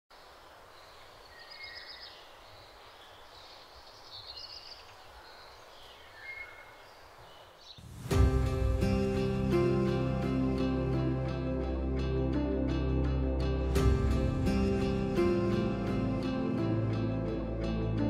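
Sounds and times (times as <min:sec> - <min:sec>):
steady low hiss: 0:00.1 - 0:10.8
bird chirps: 0:00.8 - 0:08.0
loud music: 0:08.0 - 0:18.0.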